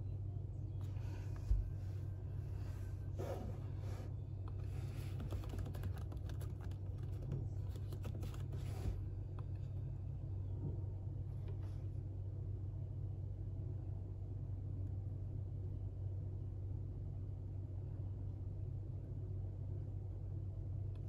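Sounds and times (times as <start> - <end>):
laptop keyboard typing: 5.0 - 8.6.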